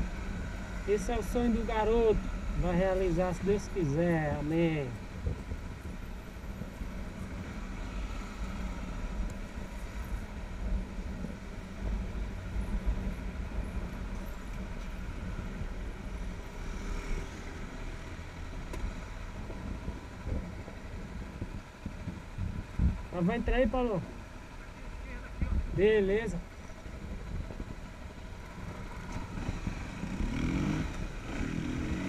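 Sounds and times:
motorcycle engine running: 0:26.4 - 0:32.0.

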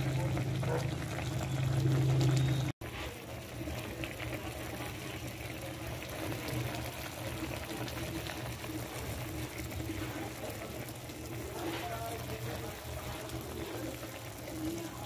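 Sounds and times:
pot bubbling at a boil: 0:00.0 - 0:15.0.

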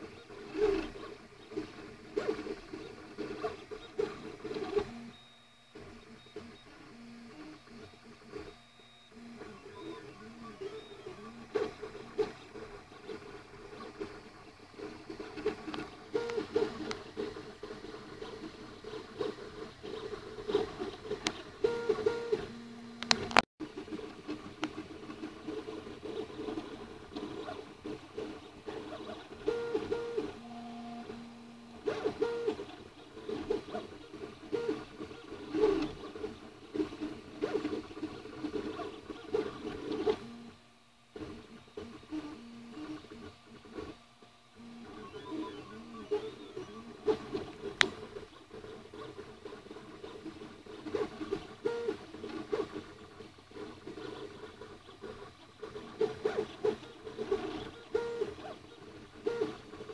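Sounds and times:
printer stepper motors tones: 0:00.0 - 0:59.9.

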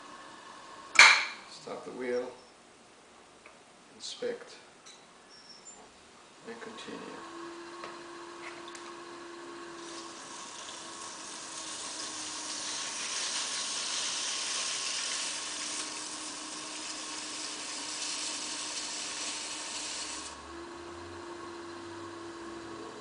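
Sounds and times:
faint hum of potter's wheel: 0:00.0 - 0:02.7, 0:04.0 - 0:23.0
metal tool shaving clay: 0:09.8 - 0:20.4.

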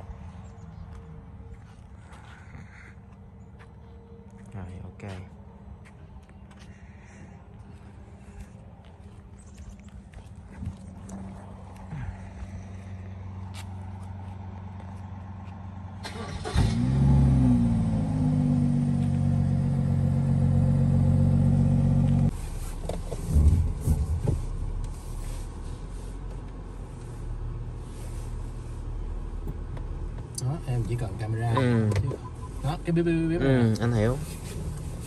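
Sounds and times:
car engine revving and idling: 0:14.0 - 0:35.0.

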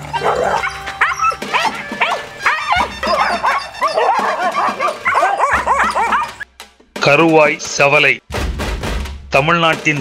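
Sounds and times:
dogs barking and yelping: 0:00.0 - 0:06.5
music: 0:00.0 - 0:10.0.

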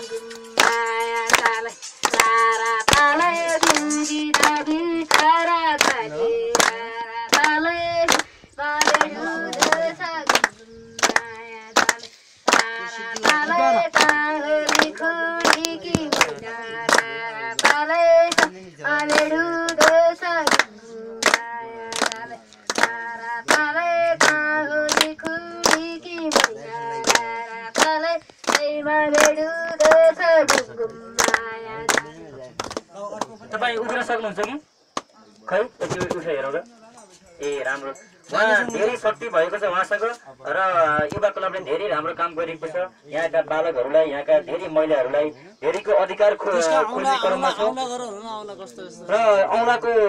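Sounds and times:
boy singing: 0:00.0 - 0:32.5
people clapping along: 0:00.0 - 0:35.2, 0:45.6 - 0:47.4.

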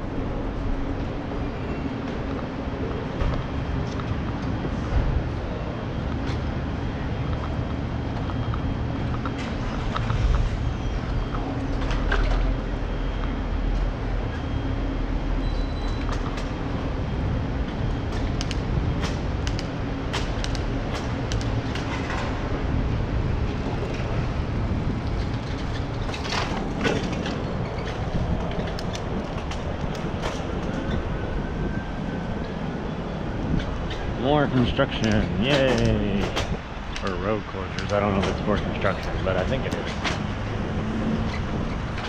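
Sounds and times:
bicycle rolling over pavement: 0:16.2 - 0:42.0.

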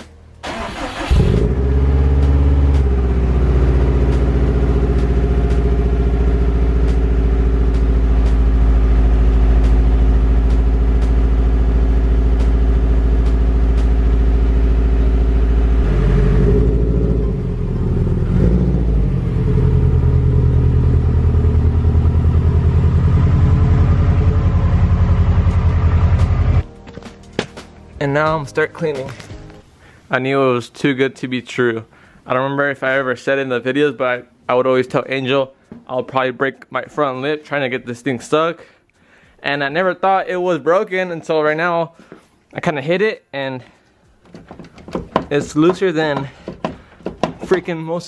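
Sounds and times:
car engine idling: 0:00.4 - 0:26.6, 0:44.2 - 0:47.7.

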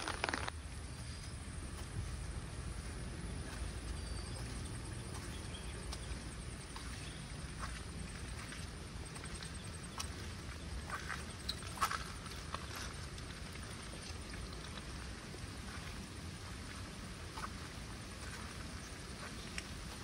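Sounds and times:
footsteps on wet path: 0:00.0 - 0:20.0
steady low rumble: 0:00.0 - 0:20.0
bird chirps: 0:03.3 - 0:12.8.

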